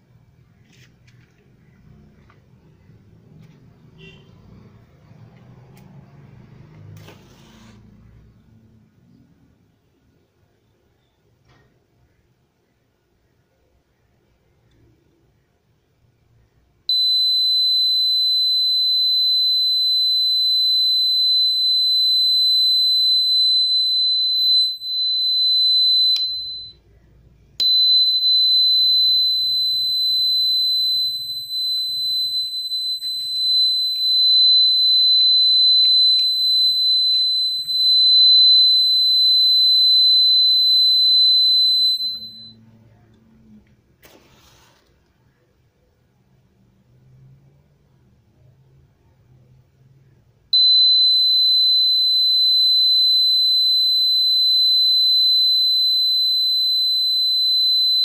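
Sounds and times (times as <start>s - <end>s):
high-pitched buzzer tone: 16.9s - 26.8s, 27.6s - 42.6s.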